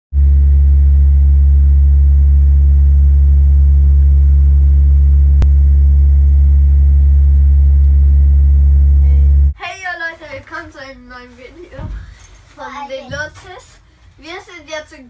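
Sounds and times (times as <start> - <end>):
aircraft cabin engine drone: 0.2 - 9.6.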